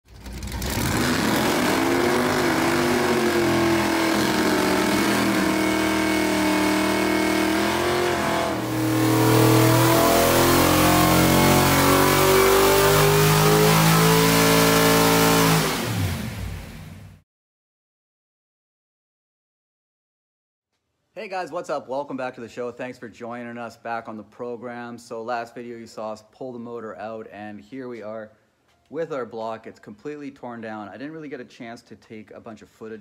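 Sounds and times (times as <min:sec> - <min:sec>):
car engine revving: 0:00.1 - 0:17.2.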